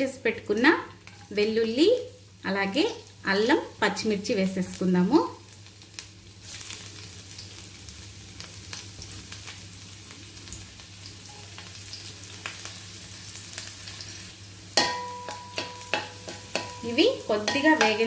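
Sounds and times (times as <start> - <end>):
garlic sizzling in hot oil: 0.0 - 18.0.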